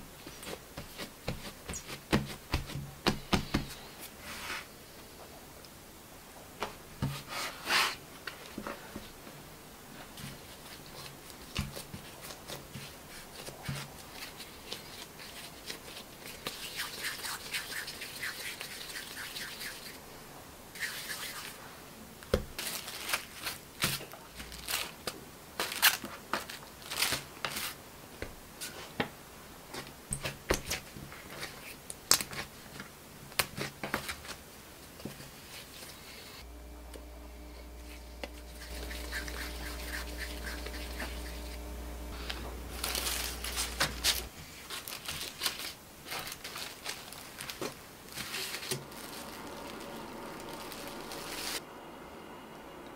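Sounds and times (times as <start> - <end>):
soft rubbing of dough: 0.0 - 5.4, 9.8 - 20.0, 35.0 - 51.6.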